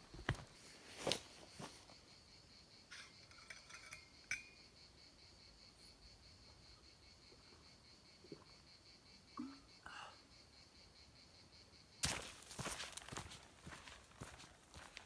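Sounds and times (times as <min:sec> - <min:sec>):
insects chirring: 0:00.0 - 0:15.0
metal water bottle clinking: 0:02.9 - 0:04.6.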